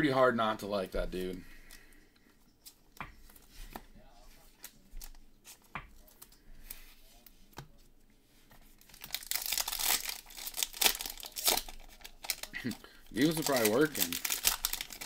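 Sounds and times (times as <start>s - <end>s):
foil pack tearing and crinkling: 8.9s - 15.0s.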